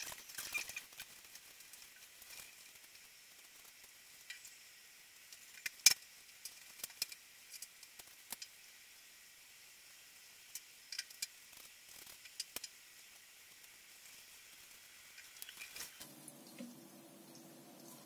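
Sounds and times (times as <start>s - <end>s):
low steady hum: 16.0s - 18.0s.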